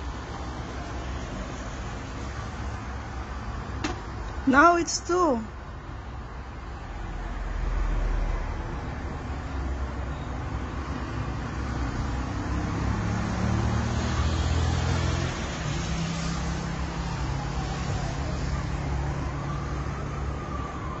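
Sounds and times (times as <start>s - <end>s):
road traffic engine rumble: 0.0s - 21.0s
emergency siren wailing: 16.0s - 21.0s.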